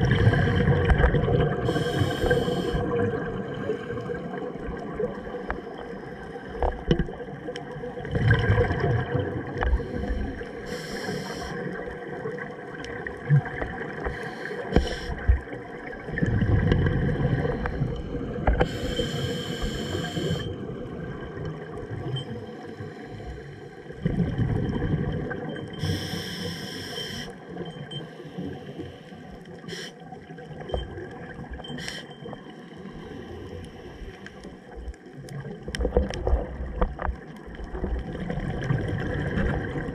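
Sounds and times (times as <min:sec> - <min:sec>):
diver inhaling through regulator: 0:00.0 - 0:00.8, 0:01.5 - 0:03.0, 0:09.6 - 0:11.7, 0:14.0 - 0:15.4, 0:18.6 - 0:20.6, 0:25.8 - 0:27.4, 0:28.0 - 0:30.0, 0:31.8 - 0:32.2
exhaled bubbles underwater: 0:00.0 - 0:39.9.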